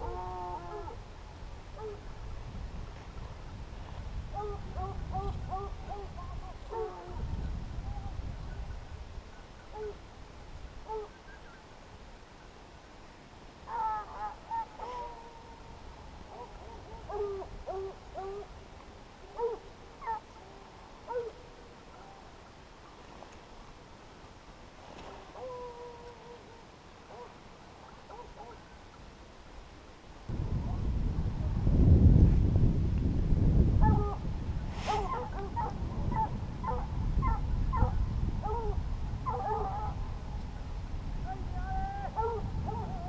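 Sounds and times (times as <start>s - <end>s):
low wind rumble: 0.0s - 11.1s, 29.4s - 43.0s
hounds baying and yelping: 16.3s - 18.5s, 19.4s - 21.4s, 28.1s - 28.6s, 34.9s - 40.0s, 41.7s - 43.0s.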